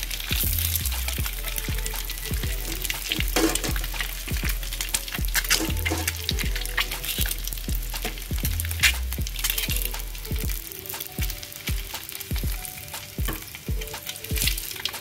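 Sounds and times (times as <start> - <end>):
background music with bass: 0.0 - 15.0
eggs sizzling in oil: 0.0 - 15.0
oil spitting pops: 2.9 - 10.1.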